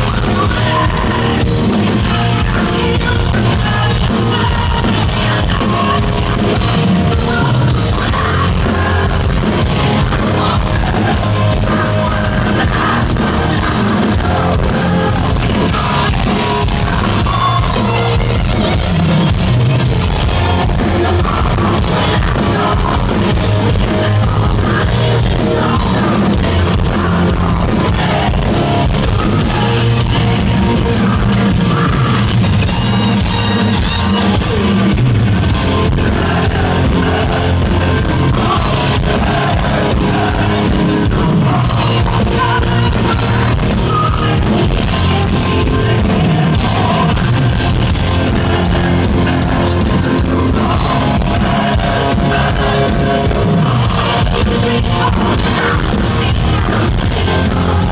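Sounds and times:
heavy metal band playing live: 0:00.0 - 0:57.9
person singing: 0:00.0 - 0:57.9.

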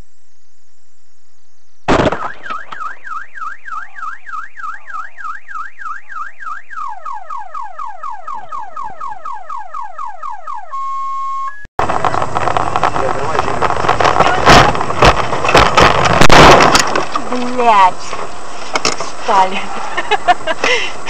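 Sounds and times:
car alarm sounding: 0:02.2 - 0:11.7.

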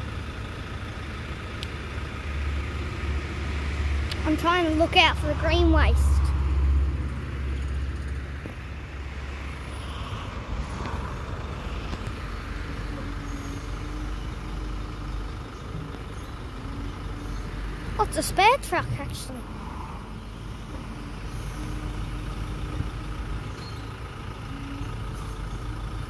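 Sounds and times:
garbage truck diesel engine: 0:00.0 - 0:26.0.

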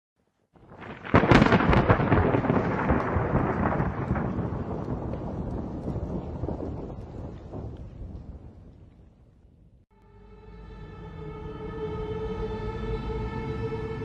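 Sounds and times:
crackling crash with rumble: 0:00.6 - 0:08.6.

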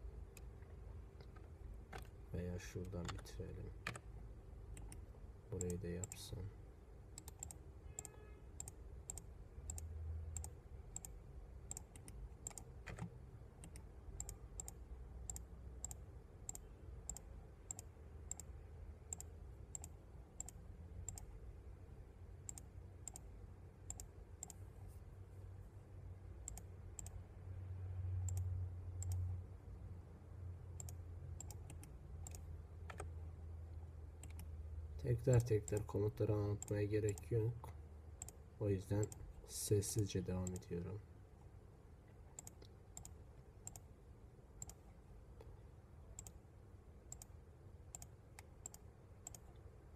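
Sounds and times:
low steady hum: 0:00.0 - 0:49.9
computer mouse clicking: 0:01.2 - 0:02.2, 0:02.8 - 0:04.1, 0:04.7 - 0:06.2, 0:07.2 - 0:18.5, 0:19.1 - 0:21.3, 0:22.5 - 0:23.3, 0:23.9 - 0:24.6, 0:26.4 - 0:27.2, 0:28.3 - 0:29.2, 0:30.8 - 0:33.1, 0:34.2 - 0:34.5, 0:35.3 - 0:36.0, 0:36.6 - 0:37.3, 0:38.2 - 0:38.4, 0:42.4 - 0:43.9, 0:44.6 - 0:44.9, 0:46.2 - 0:46.4, 0:47.1 - 0:49.6.

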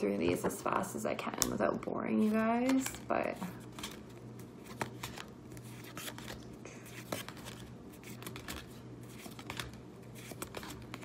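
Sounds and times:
cards flipping and sliding: 0:02.2 - 0:11.0.

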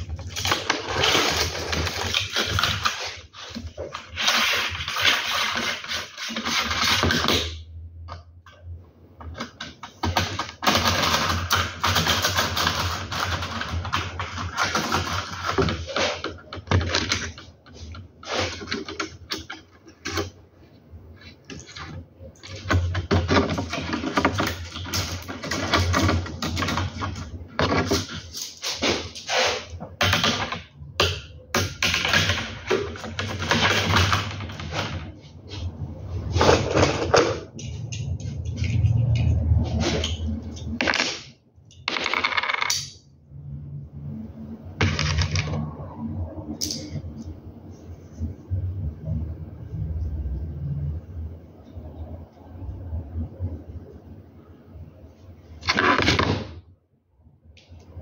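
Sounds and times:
plastic parts clicking and rattling: 0:00.0 - 0:08.6, 0:09.2 - 0:20.4, 0:21.2 - 0:35.1, 0:39.9 - 0:43.0.

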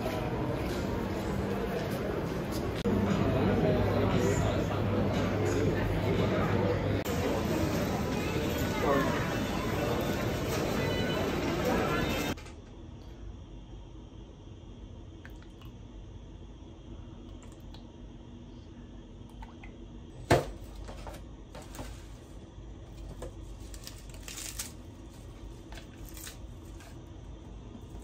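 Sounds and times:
plastic and leaves rustling: 0:23.4 - 0:27.0.

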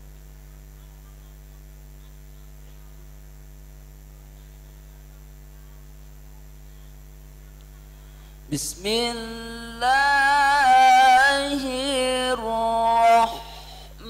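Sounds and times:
electrical mains hum: 0:00.0 - 0:14.0.

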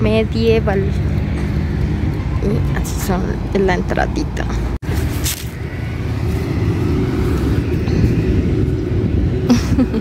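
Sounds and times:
steady low rumble: 0:00.0 - 0:10.0.

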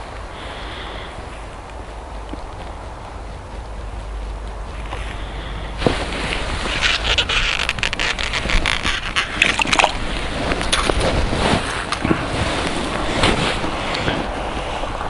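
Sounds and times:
wind rumble on microphone: 0:00.0 - 0:15.0
mitten and jacket rustling: 0:02.6 - 0:08.7, 0:09.9 - 0:14.9.

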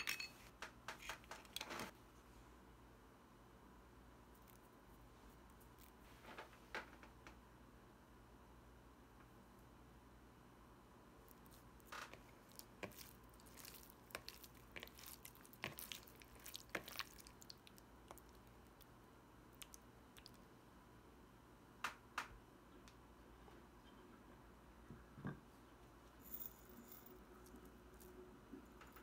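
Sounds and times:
wet squelching of meat kneaded: 0:12.2 - 0:18.9.

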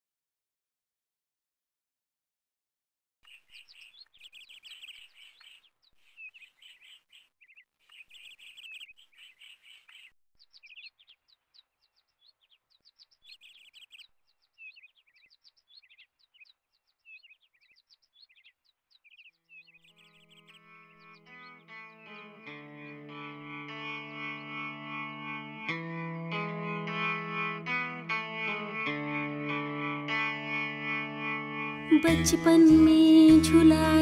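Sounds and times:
small birds chirping: 0:03.2 - 0:25.8.

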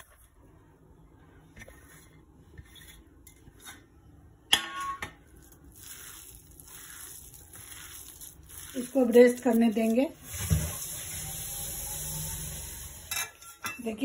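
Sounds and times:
hand mixing food: 0:01.2 - 0:03.6, 0:05.2 - 0:12.8.

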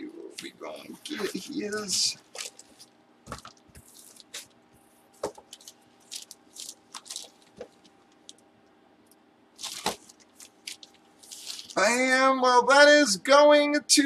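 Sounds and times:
plastic wrapping crinkling: 0:01.1 - 0:04.6, 0:05.2 - 0:08.4, 0:09.6 - 0:11.8.

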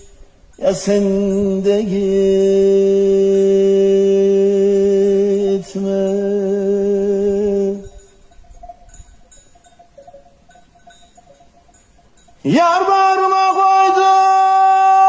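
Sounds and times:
sheep bells tinkling: 0:00.0 - 0:15.0
man singing unaccompanied: 0:00.6 - 0:08.1, 0:12.4 - 0:15.0.

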